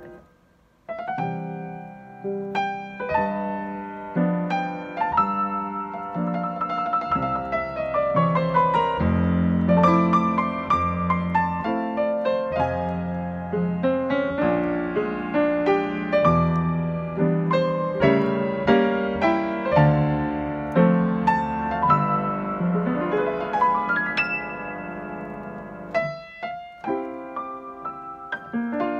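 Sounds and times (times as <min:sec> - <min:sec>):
grand piano playing: 0:00.0 - 0:28.9.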